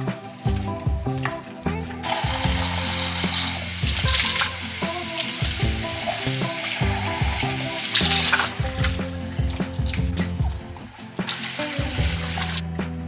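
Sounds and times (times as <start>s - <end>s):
background music: 0.0s - 13.0s
water running from tap: 2.0s - 10.6s, 11.3s - 12.6s
dishes rinsed under water: 2.0s - 12.6s.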